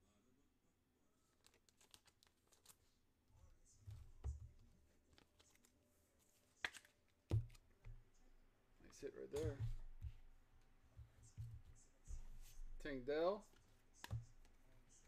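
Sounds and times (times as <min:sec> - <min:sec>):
cards and wrappers rustling: 0:01.3 - 0:03.0, 0:04.0 - 0:07.8.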